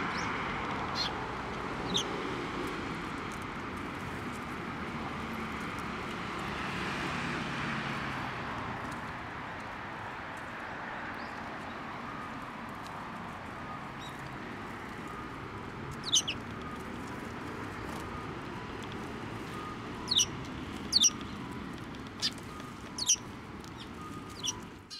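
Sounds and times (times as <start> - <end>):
sparrows chirping: 0.0 - 2.2, 10.6 - 12.4, 13.3 - 24.9.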